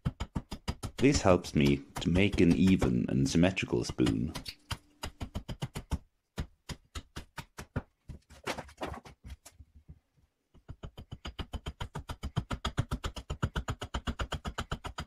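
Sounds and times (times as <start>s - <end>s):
axe chopping wood: 0.0s - 3.0s, 3.9s - 7.9s, 11.0s - 15.0s.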